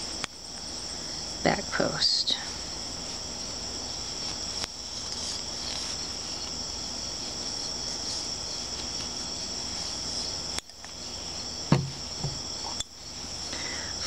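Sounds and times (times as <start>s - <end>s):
insects droning: 0.0s - 14.0s
low handling thump: 11.7s - 12.4s.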